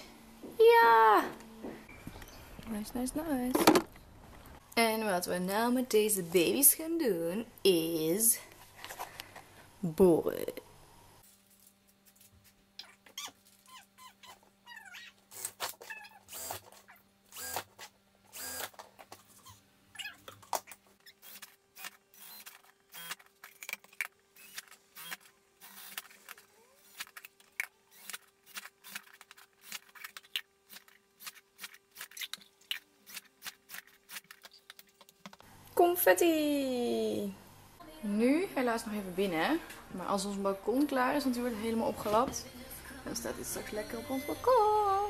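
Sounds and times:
cordless drill drilling plastic: 16.3s - 16.7s, 17.3s - 18.8s, 21.2s - 23.2s, 24.4s - 27.0s.

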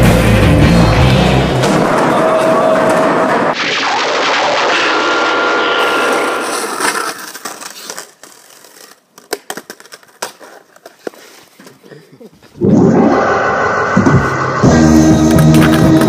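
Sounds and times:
loud dense noise with high tone: 1.9s - 7.4s
skateboard wheels on asphalt: 6.2s - 11.8s.

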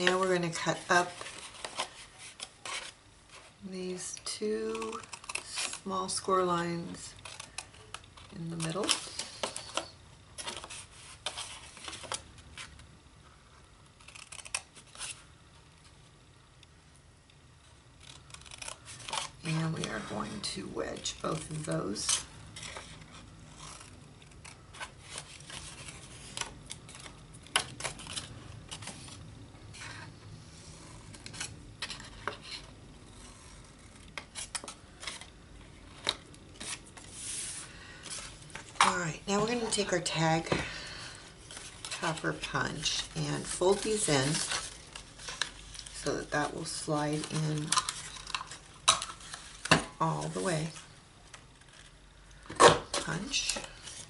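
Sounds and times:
scissors snipping paper: 4.6s - 9.7s, 14.0s - 14.8s, 18.0s - 23.0s.

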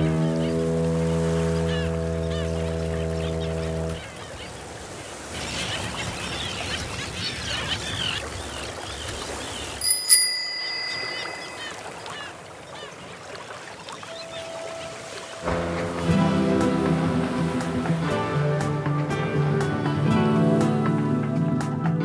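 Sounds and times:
ship foghorn low tone: 0.0s - 4.1s
small birds chirping: 1.6s - 15.4s
bicycle bell ringing: 9.8s - 12.0s.

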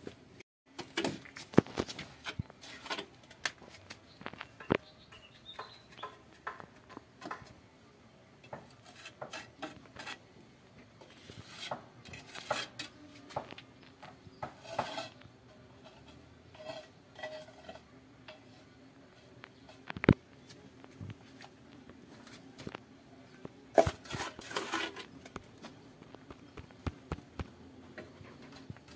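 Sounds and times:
metal trowel scraping and clinking: 8.4s - 10.2s, 11.0s - 13.4s, 14.5s - 15.2s, 15.8s - 20.0s, 23.8s - 25.4s.

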